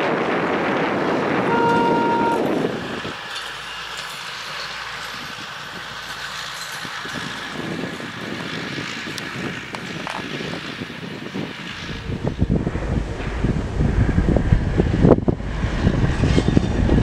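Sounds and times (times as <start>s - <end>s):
railcar running on track: 0.0s - 17.0s
wind buffeting microphone: 0.0s - 17.0s
train horn note: 1.4s - 2.8s.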